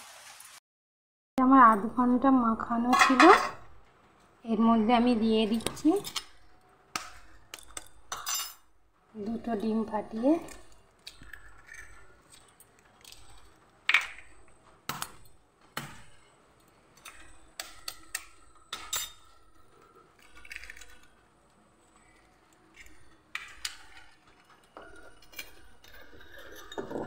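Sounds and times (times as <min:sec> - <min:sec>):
eggs cracking on steel bowl: 0:05.6 - 0:08.3, 0:10.1 - 0:27.0.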